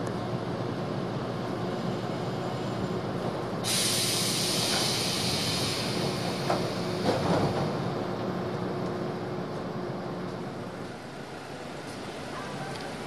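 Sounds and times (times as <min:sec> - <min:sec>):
train low hum: 0:00.0 - 0:13.0
compressed air hiss: 0:03.6 - 0:07.0.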